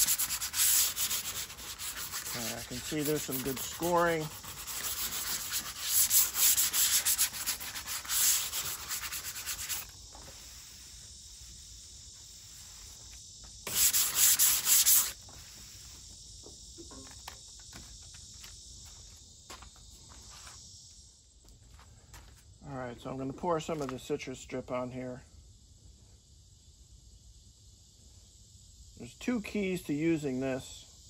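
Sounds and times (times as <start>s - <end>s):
sandpaper scraping metal panel: 0.0s - 9.9s, 13.7s - 15.2s.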